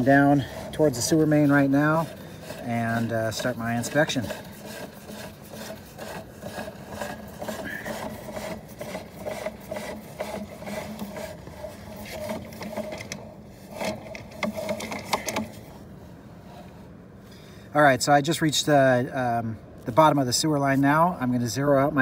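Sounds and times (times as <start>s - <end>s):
cable rasping against pipe: 0.0s - 17.0s.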